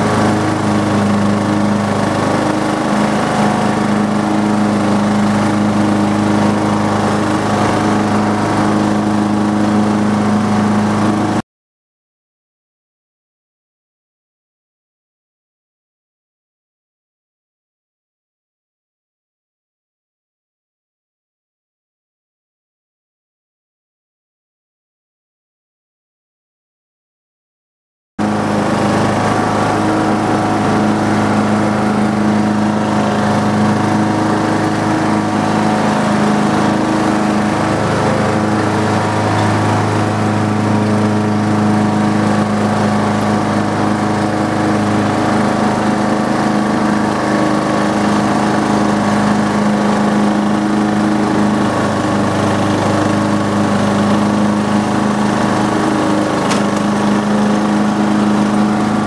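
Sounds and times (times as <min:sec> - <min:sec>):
riding lawn mower engine humming: 0:00.0 - 0:11.4, 0:28.2 - 0:59.0.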